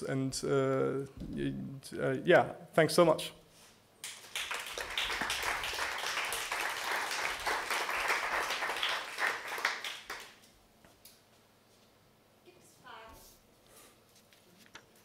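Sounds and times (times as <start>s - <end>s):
audience applauding: 4.0s - 10.4s.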